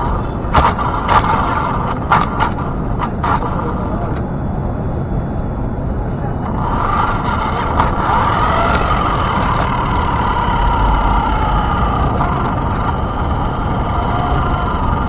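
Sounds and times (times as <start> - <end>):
tyres rumbling on concrete: 0.0 - 4.4, 5.9 - 15.0
electric motor and gears whining: 0.0 - 15.0.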